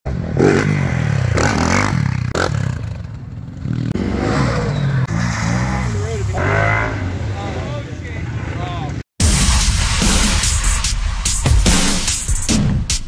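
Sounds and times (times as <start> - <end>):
utility vehicle engine revving: 0.2 - 7.6.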